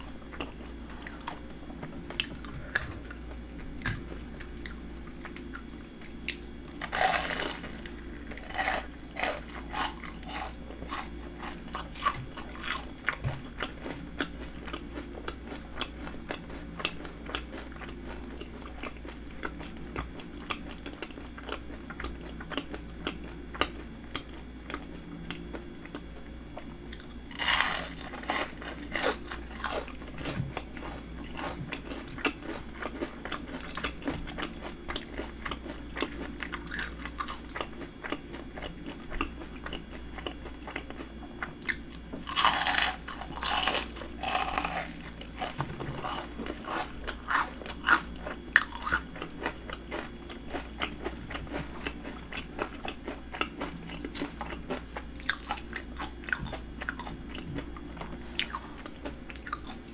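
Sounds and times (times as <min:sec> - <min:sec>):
crunchy chewing: 0:00.0 - 0:59.9.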